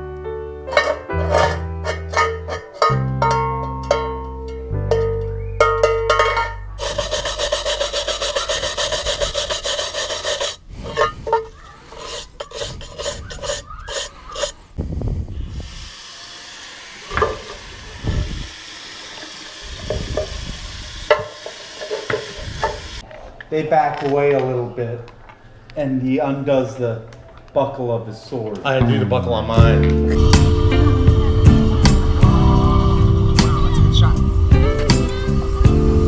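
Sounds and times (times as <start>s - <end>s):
piano music: 0.0s - 8.5s, 28.8s - 36.0s
irregular scraping: 0.7s - 3.0s, 6.1s - 14.8s
hand rubbing rasp: 6.8s - 14.7s.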